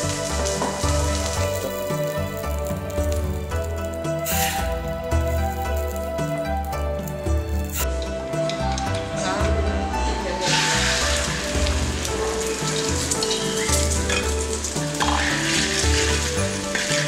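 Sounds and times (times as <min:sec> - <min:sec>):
egg sizzling in oil: 0:00.0 - 0:07.8, 0:10.4 - 0:17.0
background music with bass: 0:00.0 - 0:17.0
metal spatula in wok: 0:12.0 - 0:17.0.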